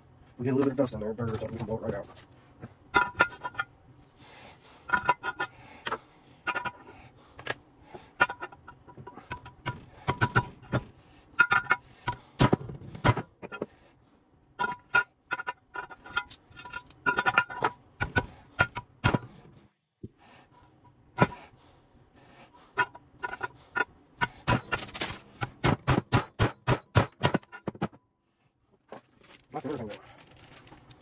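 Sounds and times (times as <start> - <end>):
metal parts and tools clinking: 1.2 - 3.7, 4.9 - 7.6, 8.2 - 13.7, 14.6 - 19.3, 22.8 - 25.8.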